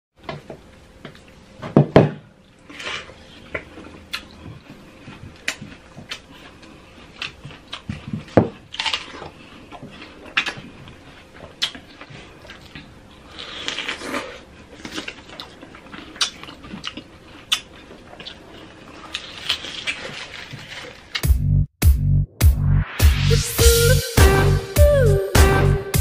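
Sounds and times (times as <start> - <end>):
wet biting and chewing: 2.4 - 21.3.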